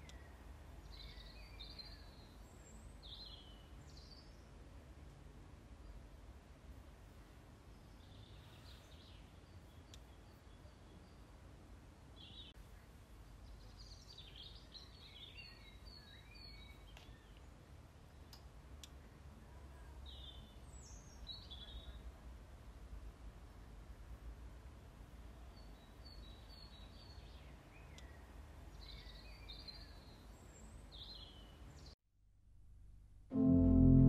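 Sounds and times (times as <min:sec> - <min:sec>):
faint songbird calls: 0:00.0 - 0:04.6.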